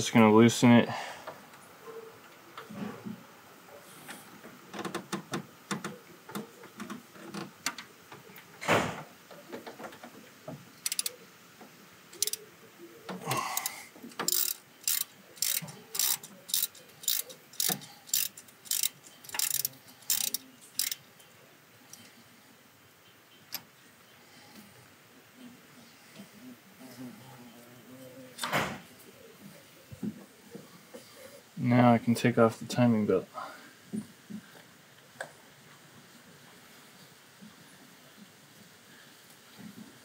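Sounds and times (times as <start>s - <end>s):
socket ratchet clicking: 10.8s - 11.1s, 12.2s - 12.4s, 13.6s - 21.0s
tool clicks: 14.1s - 21.0s.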